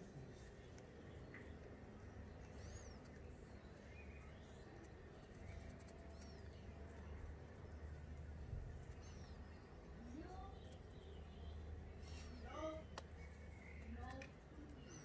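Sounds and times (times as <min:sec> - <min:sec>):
faint bird chirps: 0:00.0 - 0:15.0.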